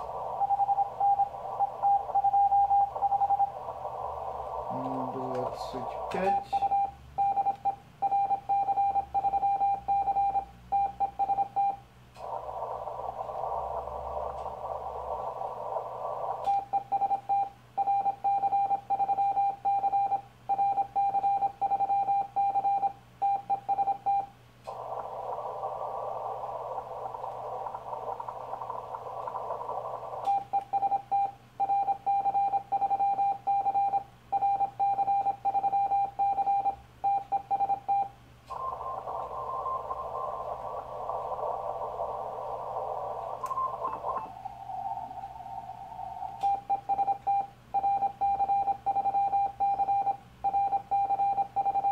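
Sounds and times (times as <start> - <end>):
receiver hiss: 0.0 - 51.9.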